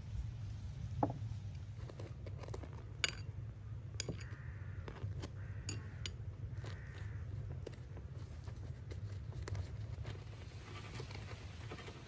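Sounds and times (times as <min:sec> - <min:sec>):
spoon scraping butter on flatbread: 0:01.6 - 0:03.4, 0:04.0 - 0:12.0
spoon and dishes clicking: 0:02.9 - 0:03.4, 0:05.6 - 0:06.2.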